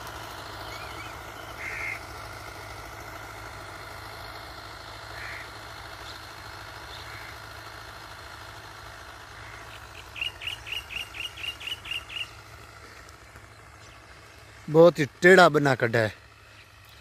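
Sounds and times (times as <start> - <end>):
distant tractor diesel engine: 0.0 - 17.0
bird sharp calls: 0.6 - 2.0, 5.1 - 6.2, 9.4 - 14.2.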